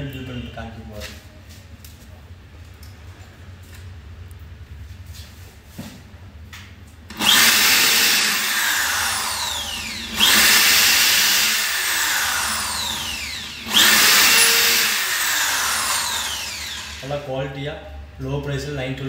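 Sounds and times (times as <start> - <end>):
drill boring into wood: 7.1 - 17.2.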